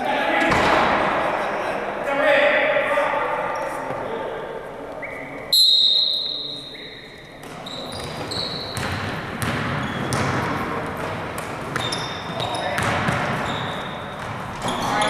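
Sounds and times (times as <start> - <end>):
murmur of spectators: 0.0 - 8.3
basketball bouncing on gym floor: 7.4 - 15.0.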